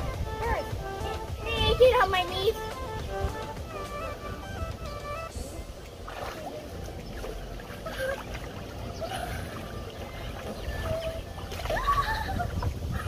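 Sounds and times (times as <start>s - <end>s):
water splashing and sloshing: 0.0s - 13.0s
faint children's voices: 5.3s - 13.0s.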